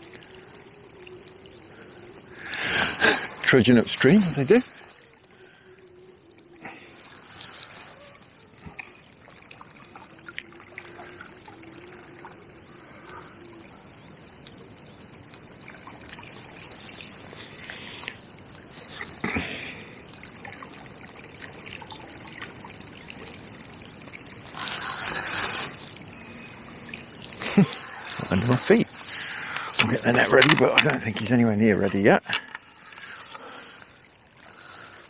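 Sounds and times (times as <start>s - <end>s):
river water washing: 1.2s - 5.7s, 6.4s - 35.0s
fishing reel clicks: 6.4s - 8.7s, 23.2s - 23.5s, 24.4s - 26.0s, 34.4s - 35.0s.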